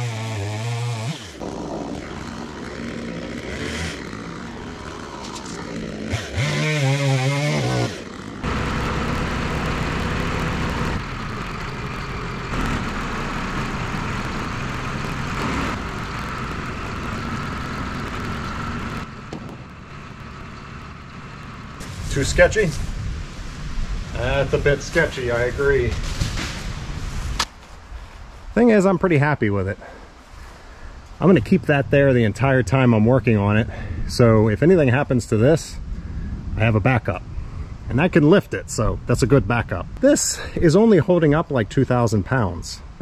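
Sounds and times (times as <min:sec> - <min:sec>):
chainsaw cutting log: 0:00.0 - 0:19.7
engine running steadily: 0:01.4 - 0:23.3.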